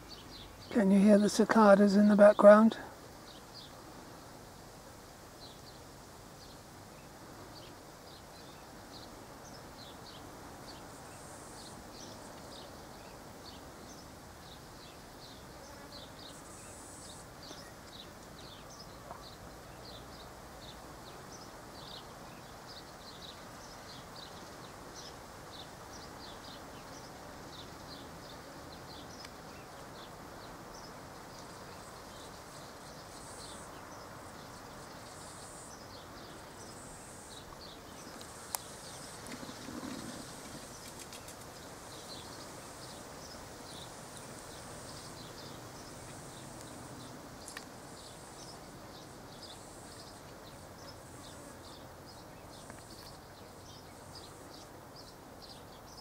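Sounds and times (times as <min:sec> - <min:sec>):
cicadas chirping: 0:00.0 - 0:56.0.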